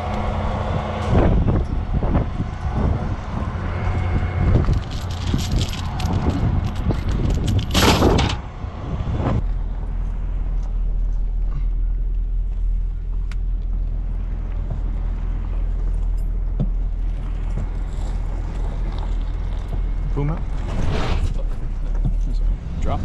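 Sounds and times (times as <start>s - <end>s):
pickup engine rumbling: 0.0s - 23.0s
heavy chain clanking: 3.6s - 8.5s.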